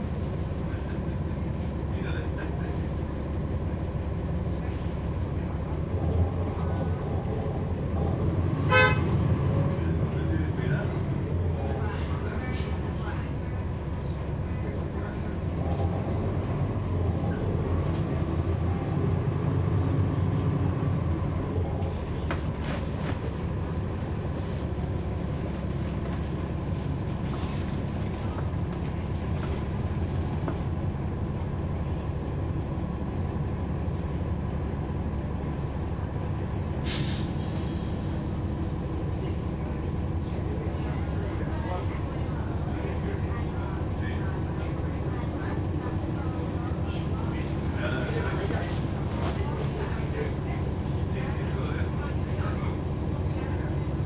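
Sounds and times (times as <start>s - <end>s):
bus diesel engine under load: 0.0s - 54.0s
air brake hiss: 36.7s - 38.2s.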